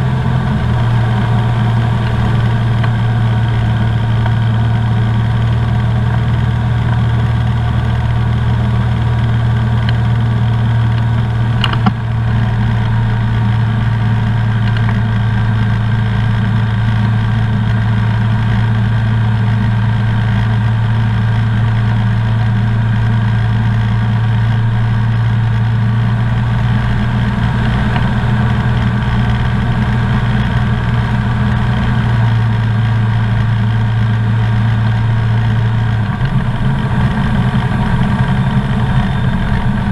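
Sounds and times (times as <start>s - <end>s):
aircraft engine and propeller droning: 0.0s - 39.9s
sharp click: 10.9s - 12.0s.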